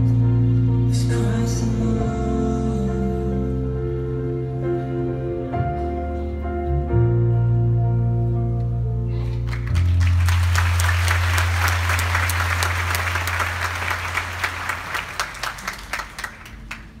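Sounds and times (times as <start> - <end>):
audience applauding: 9.4 - 17.0.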